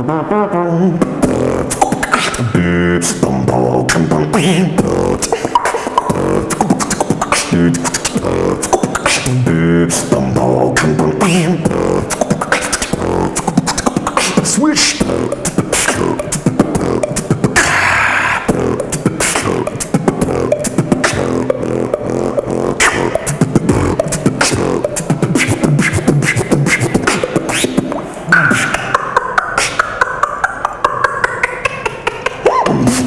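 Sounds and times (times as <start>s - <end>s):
person beatboxing: 0.0s - 33.0s.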